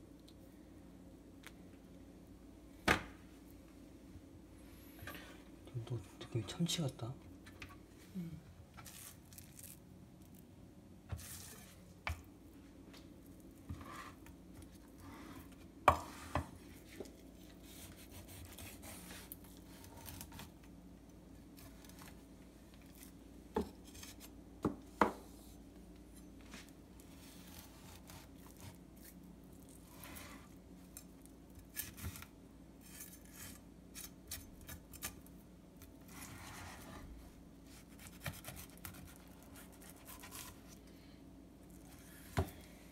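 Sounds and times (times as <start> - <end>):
knife scraping and cutting fish: 17.6 - 20.5, 29.8 - 35.2, 37.7 - 40.7.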